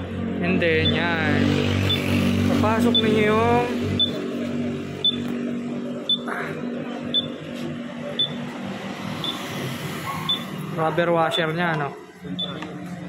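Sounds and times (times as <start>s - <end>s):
high-pitched electronic beep: 1.8s - 2.2s, 2.8s - 4.2s, 5.0s - 5.4s, 6.0s - 6.3s, 7.0s - 7.4s, 8.2s - 8.4s, 9.2s - 9.5s, 10.2s - 10.5s, 12.3s - 12.6s.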